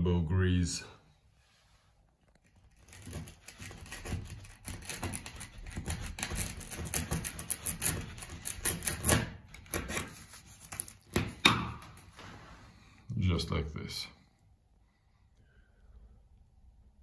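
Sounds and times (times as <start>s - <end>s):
chisel chipping and scraping wood: 2.4s - 12.1s.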